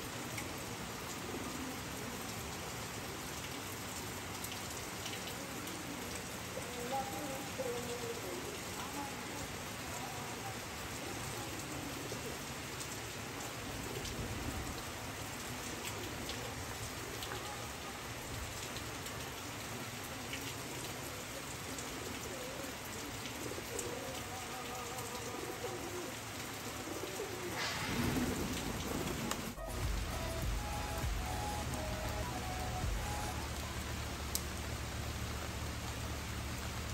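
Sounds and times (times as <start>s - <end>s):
rain pattering on concrete: 0.0s - 36.9s
pigeons cooing: 1.1s - 2.3s, 21.5s - 29.4s.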